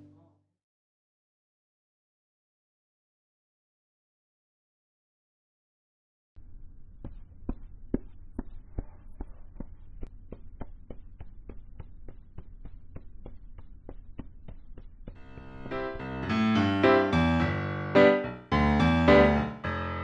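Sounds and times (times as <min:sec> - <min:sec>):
low steady hum: 0:06.4 - 0:16.9.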